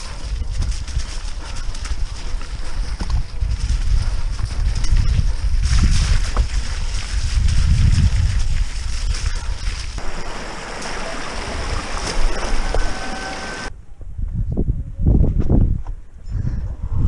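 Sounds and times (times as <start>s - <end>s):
heavy rumble: 0.0s - 14.6s
wind buffeting microphone: 0.0s - 17.0s
steady hiss: 10.0s - 13.7s.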